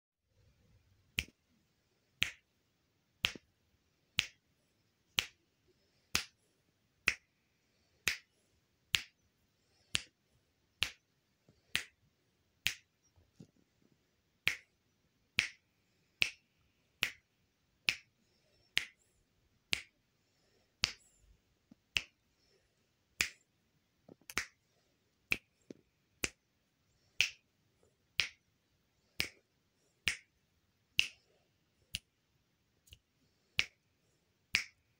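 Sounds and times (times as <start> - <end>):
fingers snapping: 1.2 - 1.4, 2.2 - 2.5, 3.2 - 3.5, 4.2 - 4.4, 5.2 - 5.4, 6.1 - 6.4, 8.0 - 8.3, 8.9 - 9.2, 9.9 - 10.2, 10.8 - 11.0, 11.7 - 12.0, 12.6 - 12.9, 14.4 - 14.7, 15.4 - 15.6, 16.2 - 16.4, 17.0 - 17.2, 17.8 - 18.1, 18.7 - 19.0, 19.7 - 20.0, 24.1 - 24.6, 25.3 - 26.4, 27.2 - 27.4, 28.2 - 28.4, 29.2 - 29.4, 30.0 - 30.3, 31.0 - 31.3, 32.8 - 33.0, 33.6 - 33.8, 34.5 - 34.8.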